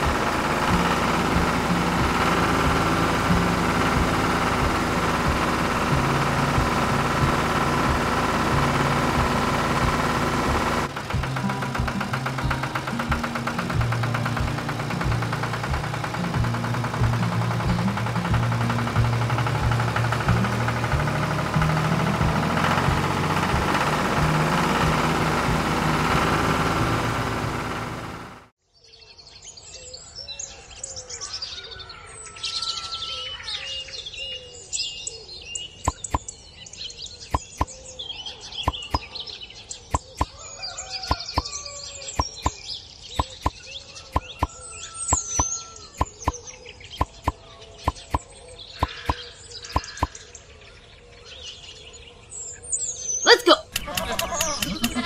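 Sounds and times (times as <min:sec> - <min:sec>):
sharp clicks: 0:00.0 - 0:27.9, 0:35.8 - 0:36.3, 0:37.3 - 0:37.7, 0:38.6 - 0:39.1, 0:39.9 - 0:40.3, 0:41.1 - 0:41.5, 0:42.2 - 0:42.6, 0:43.2 - 0:46.4, 0:47.0 - 0:50.2, 0:53.7 - 0:55.0
toy tractor motor running: 0:00.0 - 0:28.5, 0:35.9 - 0:36.2, 0:37.3 - 0:37.7, 0:38.6 - 0:39.1, 0:39.9 - 0:40.3, 0:41.0 - 0:42.6, 0:43.2 - 0:46.4, 0:47.0 - 0:48.2, 0:48.8 - 0:50.2, 0:53.3 - 0:55.0
birds chirping and calling: 0:29.2 - 0:55.0.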